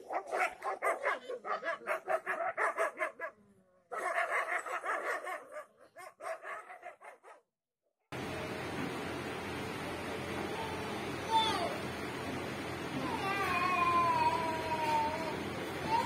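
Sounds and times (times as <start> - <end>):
dogs fighting and barking: 0.0 - 7.5
steady background hiss: 8.2 - 16.0.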